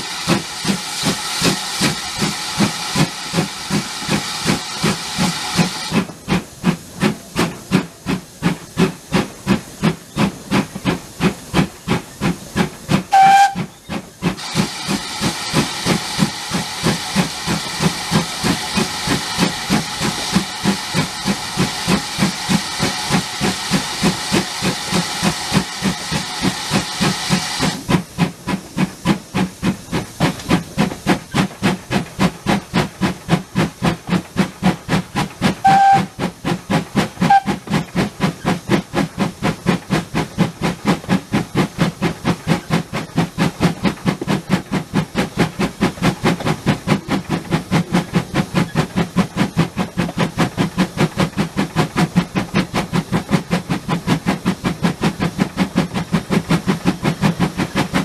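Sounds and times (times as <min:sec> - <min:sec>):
steam hissing: 0:00.0 - 0:58.0
steam locomotive exhaust beats: 0:00.0 - 0:58.0
steam whistle toots: 0:13.1 - 0:13.7, 0:35.6 - 0:36.2, 0:37.2 - 0:37.6.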